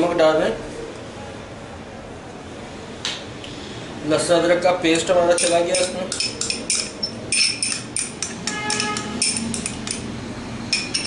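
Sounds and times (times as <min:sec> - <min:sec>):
metal spoon tapping glass cup: 0:05.0 - 0:10.1, 0:10.7 - 0:11.0.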